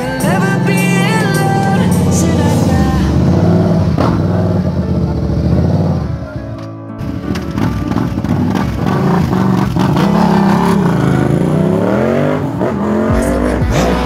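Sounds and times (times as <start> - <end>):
deep bass music: 0.0 - 14.0
motorcycle engine revving: 0.0 - 14.0.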